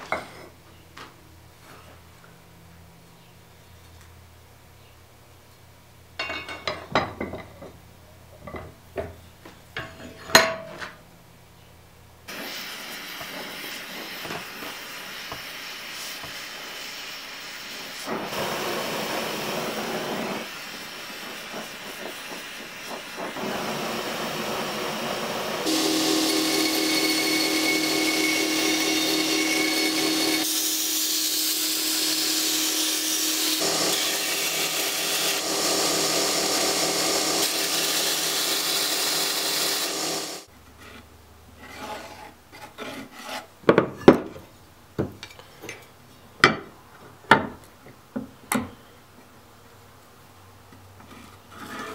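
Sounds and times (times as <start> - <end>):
gas torch hissing: 12.3 - 33.9, 34.5 - 40.5
belt grinder humming: 23.3 - 40.5
steel grinding on belt: 25.6 - 40.5.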